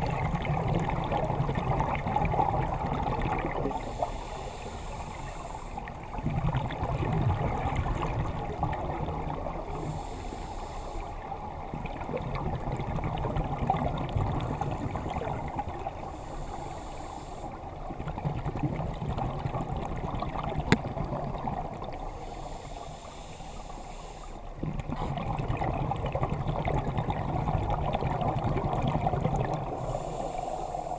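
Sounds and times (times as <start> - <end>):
exhaled bubbles rumbling: 0.0 - 4.3, 5.8 - 10.1, 11.2 - 16.6, 17.5 - 22.2, 24.4 - 30.9
regulator inhalation hiss: 3.7 - 5.9, 9.7 - 11.2, 16.0 - 17.6, 22.1 - 24.5, 29.8 - 30.9.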